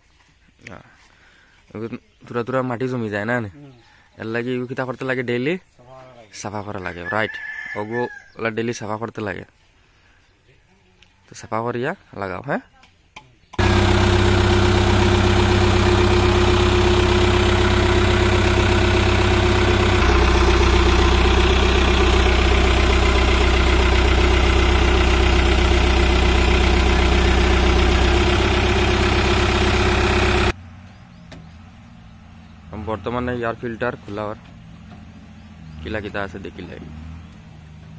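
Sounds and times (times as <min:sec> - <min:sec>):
diesel engine idling: 0:13.6 - 0:37.9.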